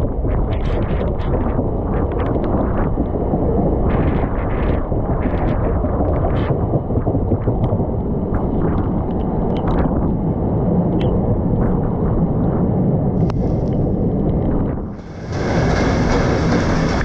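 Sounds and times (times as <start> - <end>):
wind buffeting microphone: 0.0 - 17.0
train rumbling: 13.1 - 17.0.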